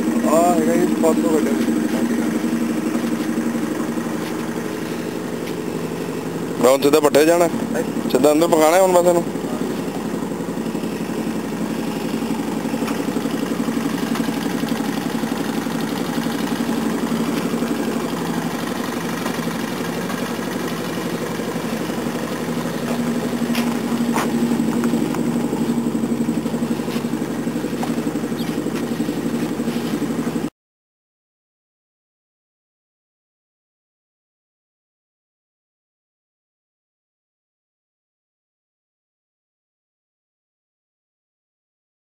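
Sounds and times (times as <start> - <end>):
engine chugging: 0.0 - 30.5.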